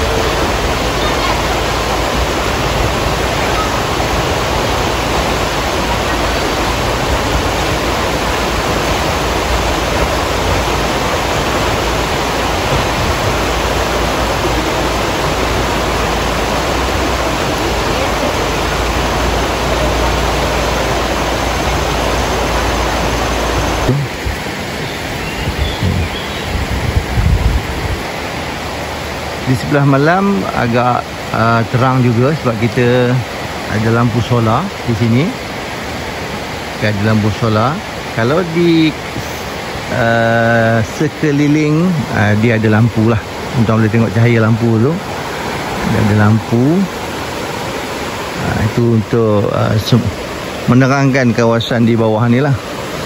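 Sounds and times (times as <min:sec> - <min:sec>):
low bumps: 0:00.0 - 0:24.4, 0:25.4 - 0:28.1
river rapids rushing: 0:00.0 - 0:53.0.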